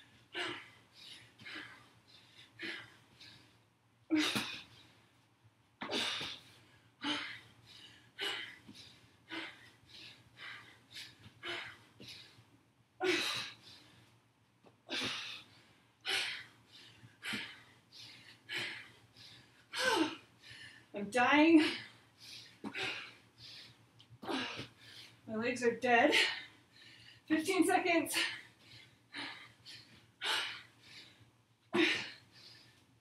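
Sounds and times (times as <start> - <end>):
woman breathing hard: 0.0 - 5.1, 5.8 - 14.2, 14.8 - 21.0, 21.6 - 25.3, 26.1 - 27.3, 28.1 - 33.0.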